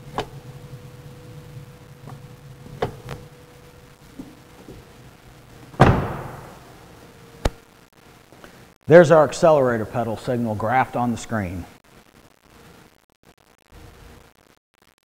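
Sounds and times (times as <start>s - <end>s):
steady low hum: 0.0s - 12.1s
truck door slamming: 5.8s - 6.6s.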